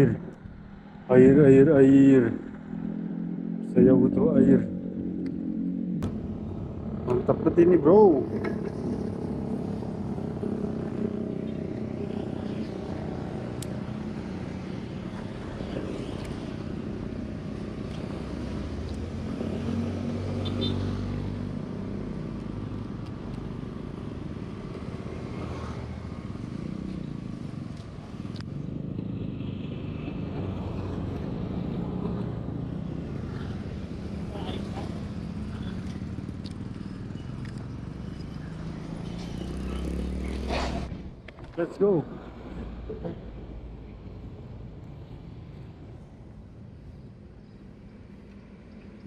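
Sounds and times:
vehicle passing loudly: 0.0 - 16.0, 37.5 - 41.1
traffic engine drone: 0.0 - 49.0.

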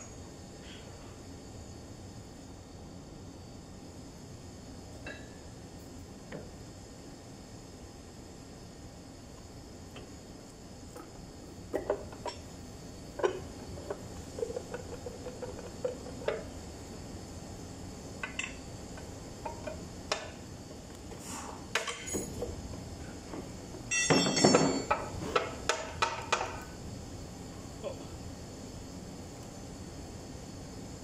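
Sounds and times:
metal clinks and knocks: 21.8 - 22.5, 23.9 - 25.2.

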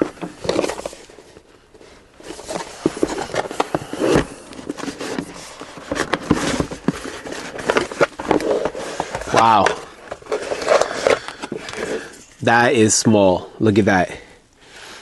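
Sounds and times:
cardboard box scraping and rubbing: 2.2 - 12.2
clicks and scrapes: 2.3 - 12.4.

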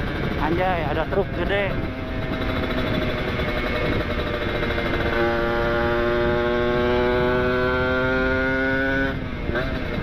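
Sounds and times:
motorcycle riding: 0.0 - 10.0.

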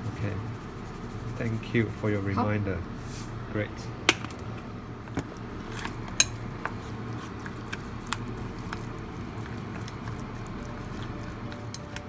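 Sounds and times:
soft squishing of minced meat: 0.0 - 3.2, 5.0 - 12.0
steady low hum: 0.0 - 12.0
chopsticks clicking on metal bowl: 11.5 - 12.0.

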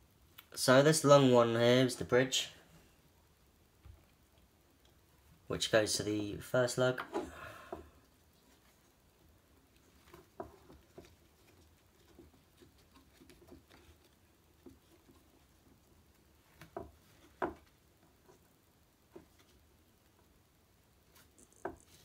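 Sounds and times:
faint clicks taps and rustles: 7.0 - 20.4, 21.0 - 22.0.

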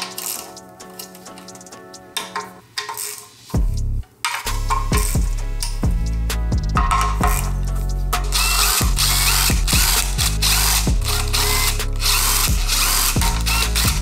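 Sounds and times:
cordless drill whirring: 8.3 - 14.0
hand ratchet working bolts: 8.3 - 14.0.

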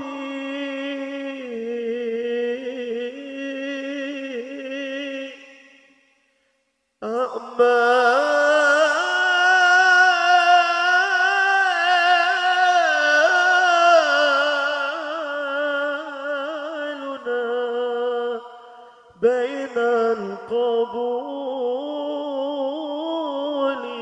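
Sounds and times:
person singing: 0.0 - 5.6, 7.0 - 24.0.

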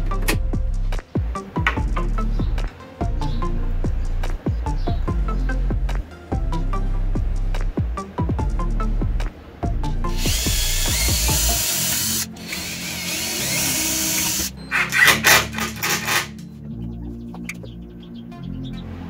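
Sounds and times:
background music: 0.0 - 19.0
cordless drill boring into board: 10.2 - 16.3.

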